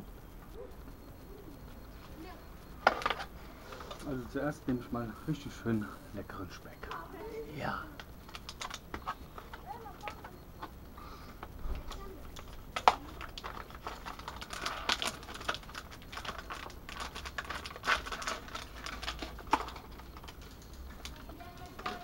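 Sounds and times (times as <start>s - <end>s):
plastic packet crinkling: 8.0s - 10.2s, 11.8s - 22.0s.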